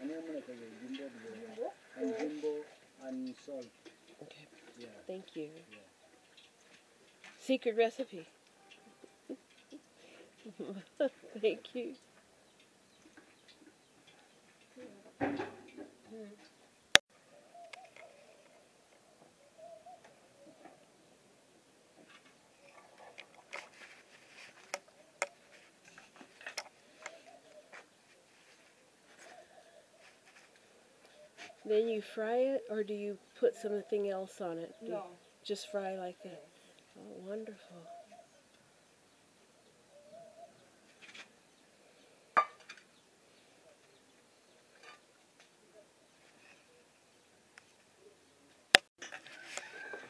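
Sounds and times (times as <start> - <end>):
dove cooing: 0.0 - 3.6, 17.3 - 21.2, 26.8 - 31.8, 36.1 - 38.5, 39.7 - 40.8.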